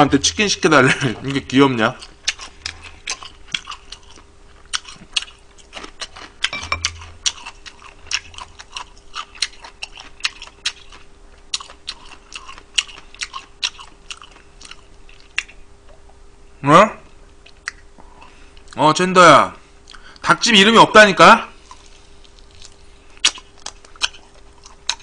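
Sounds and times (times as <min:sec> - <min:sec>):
faint steady hum: 0:00.0 - 0:25.0
person chewing fried chicken: 0:02.0 - 0:15.6, 0:19.8 - 0:20.2, 0:21.6 - 0:25.0.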